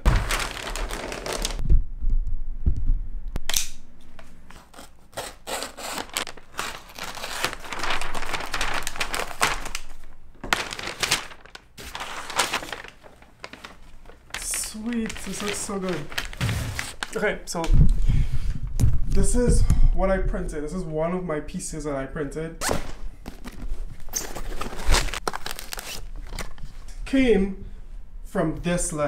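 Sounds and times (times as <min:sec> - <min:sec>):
paper rustling and tearing: 0:00.0 - 0:01.6, 0:04.5 - 0:17.3, 0:23.4 - 0:26.6
low thumps: 0:18.6 - 0:19.7.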